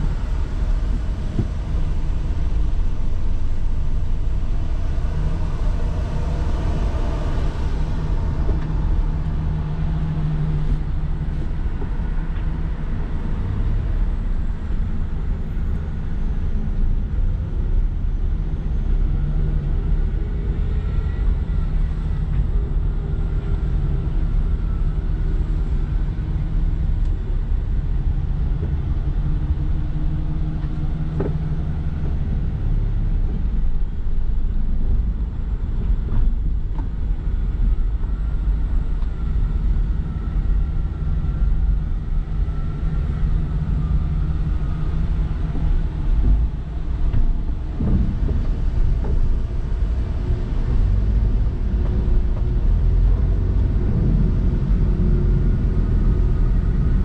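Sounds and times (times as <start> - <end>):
car engine and tyres rumbling: 0.0 - 57.0.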